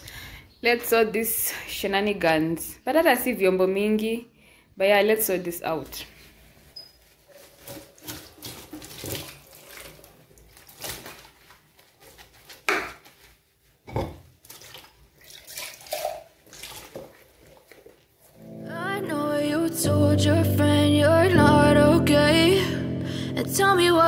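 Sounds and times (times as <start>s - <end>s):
water splashing in sink: 7.3s - 13.2s, 14.2s - 18.2s
dishes clinking and knocking: 13.9s - 14.3s.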